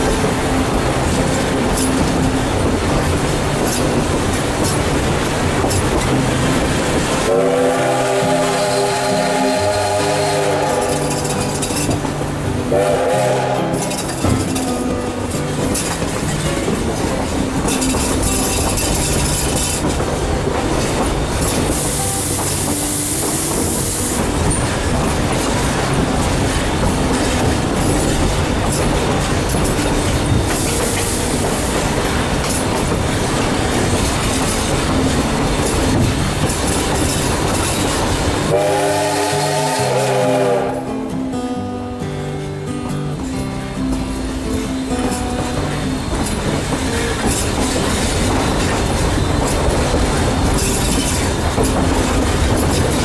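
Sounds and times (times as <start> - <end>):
wheels clicking over rails: 0.0 - 39.1, 43.1 - 53.0
railroad cars rumbling: 0.0 - 53.0.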